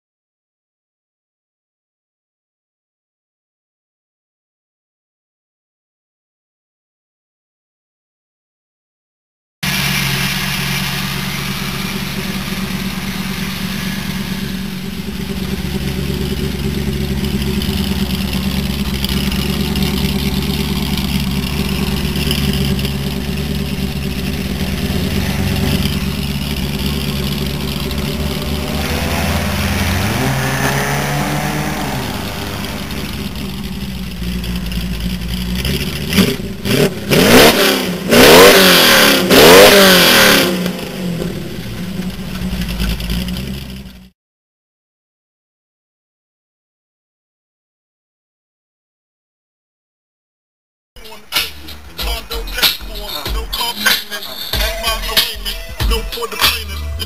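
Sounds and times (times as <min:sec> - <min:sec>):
car engine idling: 0:09.6 - 0:38.2, 0:40.6 - 0:44.1, 0:51.0 - 0:57.0
car engine revving: 0:09.6 - 0:44.1, 0:51.0 - 0:57.0.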